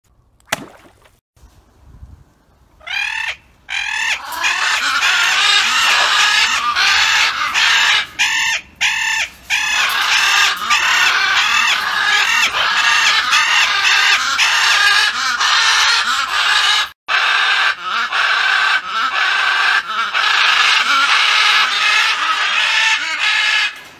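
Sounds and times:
macaws screeching: 2.8s - 23.8s.

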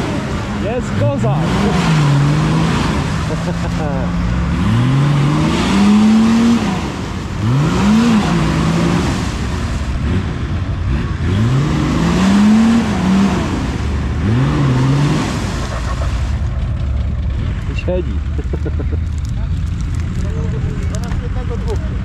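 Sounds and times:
engine revving hard: 0.0s - 16.6s.

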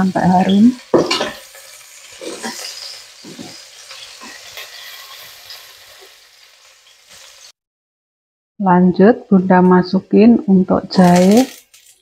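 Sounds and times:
shallots sizzling in hot oil: 0.0s - 7.6s, 10.3s - 12.0s
metal spatula scraping: 0.4s - 7.5s.

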